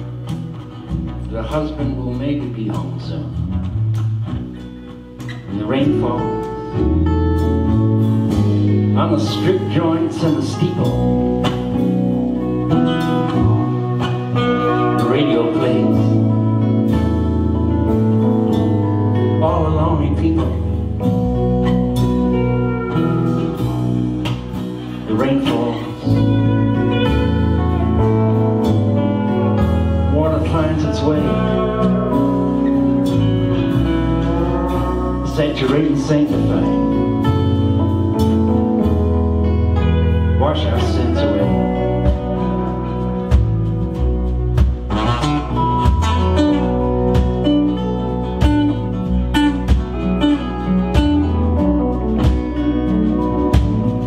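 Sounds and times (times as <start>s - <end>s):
bass: 0.0s - 54.0s
keyboard: 0.0s - 54.0s
live band playing instrumental: 0.0s - 54.0s
slide guitar gliding: 0.0s - 54.0s
drum beat: 43.3s - 51.4s, 52.1s - 54.0s.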